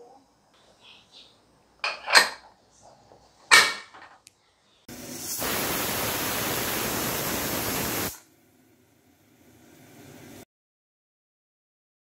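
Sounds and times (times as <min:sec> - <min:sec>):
pressure cooker steam hissing: 0:04.9 - 0:10.4.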